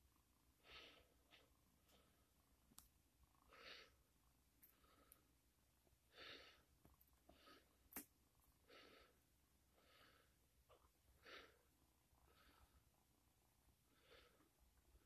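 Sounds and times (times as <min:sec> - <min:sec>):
soft breathing close to microphone: 0:00.6 - 0:02.4, 0:03.3 - 0:05.4, 0:06.1 - 0:07.9, 0:08.6 - 0:13.0, 0:13.8 - 0:15.0.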